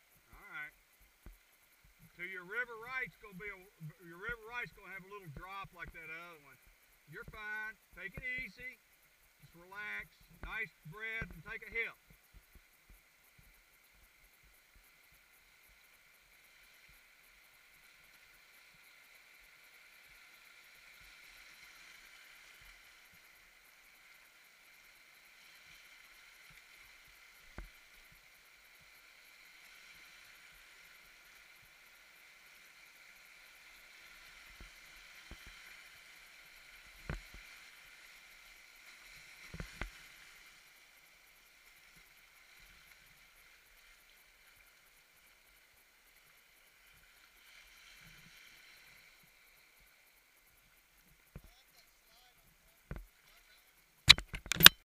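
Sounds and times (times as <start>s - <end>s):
rush of whitewater: 13.9s - 49.3s.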